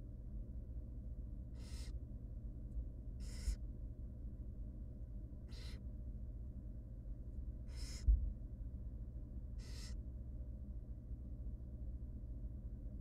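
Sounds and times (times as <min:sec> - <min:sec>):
steady low hum: 0:00.0 - 0:13.0
owl nestlings hissing: 0:01.5 - 0:02.0, 0:03.2 - 0:03.6, 0:05.4 - 0:05.8, 0:07.6 - 0:08.1, 0:09.6 - 0:10.0.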